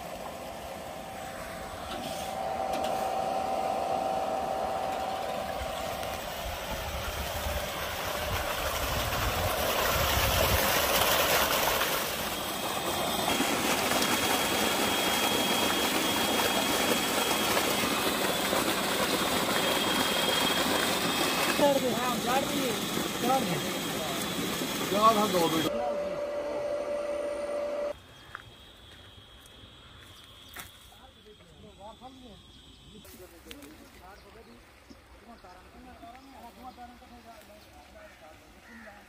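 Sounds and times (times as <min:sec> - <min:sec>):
high whine: 0:00.0 - 0:08.7, 0:12.0 - 0:33.4
electric pump running: 0:00.0 - 0:28.6
water rushing from pipe: 0:03.2 - 0:25.7.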